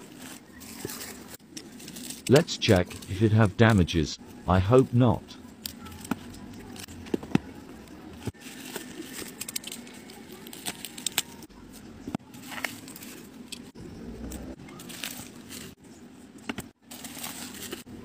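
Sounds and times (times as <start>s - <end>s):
bubble wrap crinkling: 0.0s - 3.1s, 5.4s - 13.4s, 16.8s - 18.0s.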